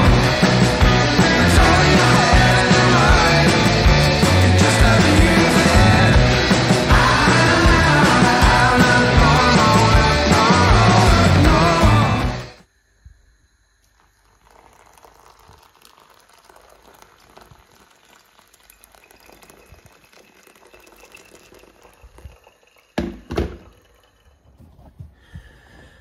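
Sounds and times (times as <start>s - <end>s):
water pouring onto coffee: 14.2s - 24.1s.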